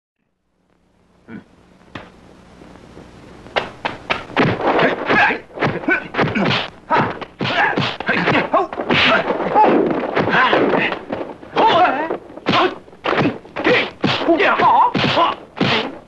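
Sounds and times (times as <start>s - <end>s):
punch and kick impacts: 3.5s - 16.0s
fighters shouting and grunting: 4.6s - 16.0s.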